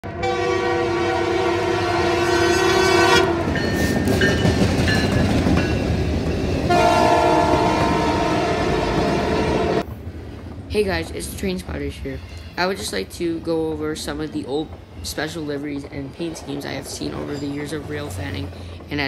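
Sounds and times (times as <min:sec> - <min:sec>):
locomotive air horn: 0:00.0 - 0:03.6, 0:06.7 - 0:09.8
train rumble and wheel clatter: 0:00.0 - 0:19.0.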